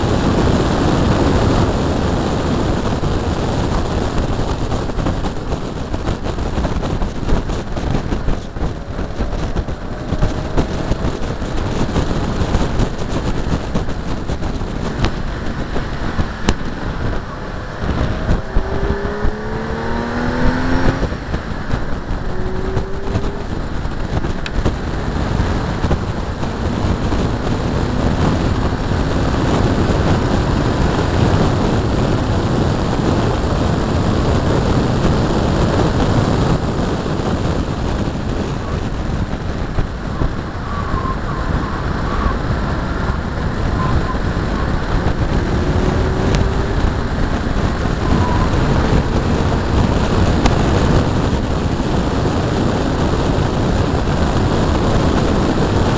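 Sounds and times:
road noise: 0.0 - 55.9
wind buffeting: 0.0 - 55.9.

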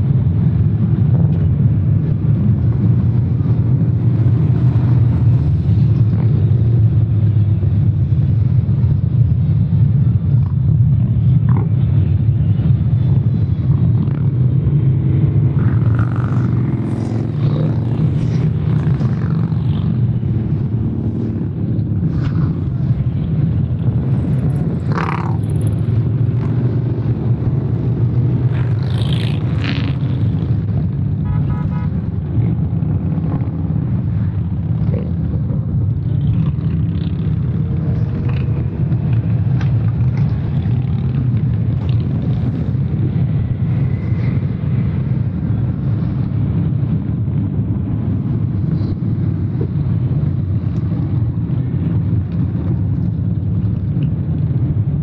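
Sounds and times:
motorcycles riding past: 13.4 - 54.9.

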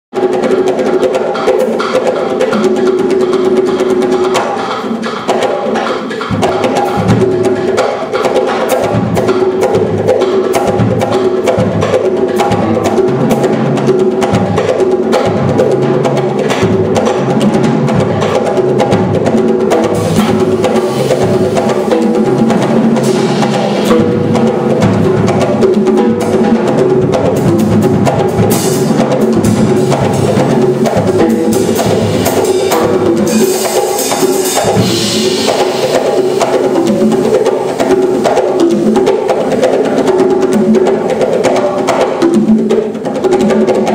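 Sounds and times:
bongo drumming: 0.1 - 43.9
held ensemble chords: 15.2 - 38.6.

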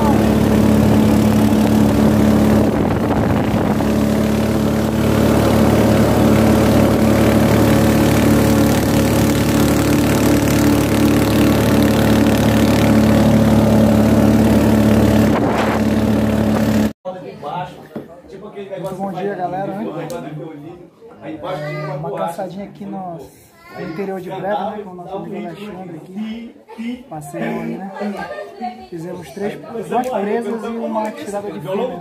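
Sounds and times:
outboard motor droning: 0.0 - 17.0.

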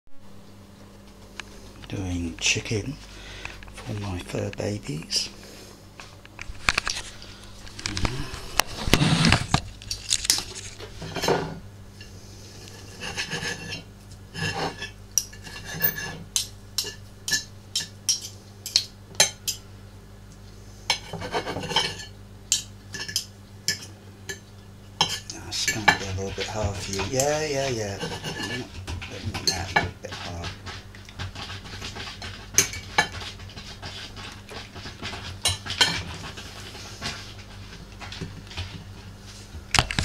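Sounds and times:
knife scraping across a plate: 8.8 - 16.2, 20.9 - 22.1, 25.0 - 37.2.

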